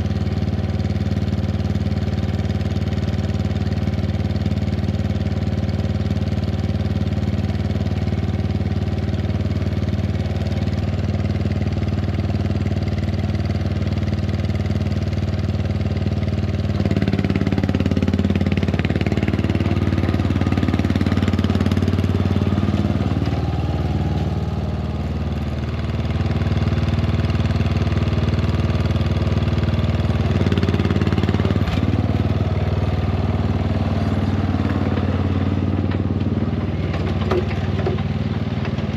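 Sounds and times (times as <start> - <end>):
lawn mower engine running: 0.0 - 38.9.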